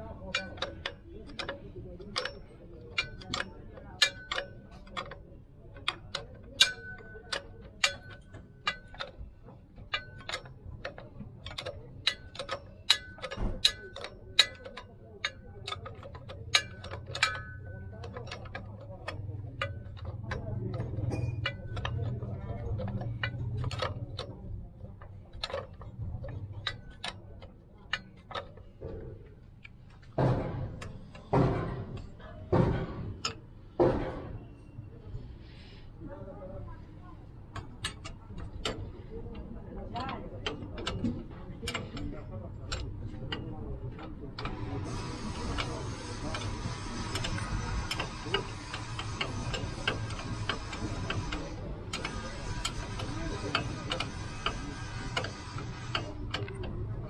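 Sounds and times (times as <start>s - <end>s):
wrench clicking on a bolt: 0.1s - 34.4s, 37.5s - 57.0s
harsh spanner strokes: 9.9s - 24.2s, 40.5s - 56.8s.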